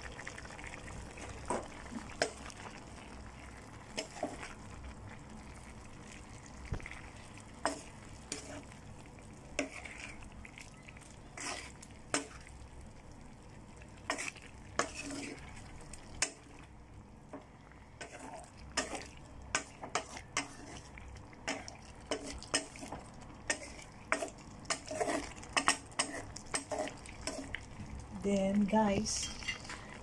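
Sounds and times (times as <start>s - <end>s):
light sizzle: 0.0s - 30.0s
spatula scraping a pan: 4.0s - 4.5s, 7.6s - 8.8s, 9.5s - 10.3s, 11.3s - 12.5s, 14.0s - 16.4s, 18.0s - 27.6s, 29.2s - 29.9s.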